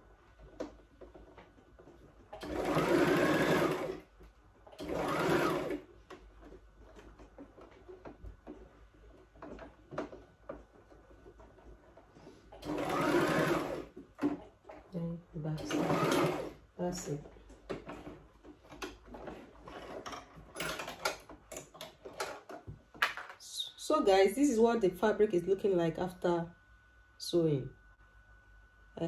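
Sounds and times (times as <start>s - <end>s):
electric sewing machine stitching: 2.3s - 4.1s, 4.7s - 5.9s, 12.5s - 14.4s, 15.5s - 17.2s.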